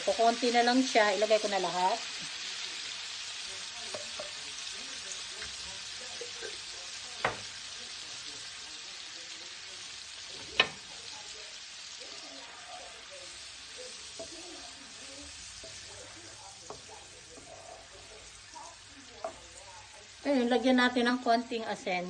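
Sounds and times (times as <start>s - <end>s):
sauce sizzling in hot oil: 0.0s - 22.0s
wooden spatula stirring: 14.1s - 19.5s.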